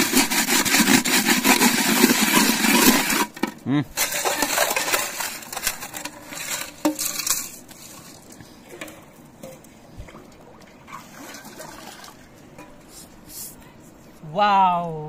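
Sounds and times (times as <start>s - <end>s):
gritty scraping of metal pot: 0.0s - 9.6s.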